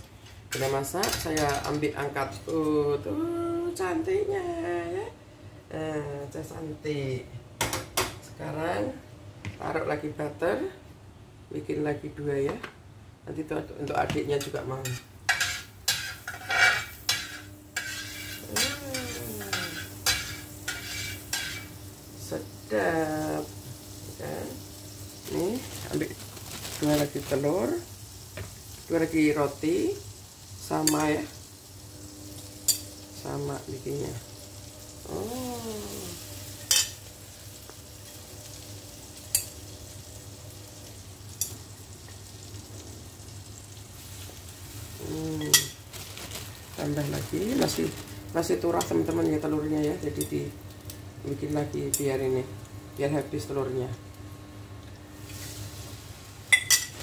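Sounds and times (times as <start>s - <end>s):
butter sizzling in a frying pan: 14.2s - 57.0s
metal spatula scraping a pan: 14.8s - 21.8s.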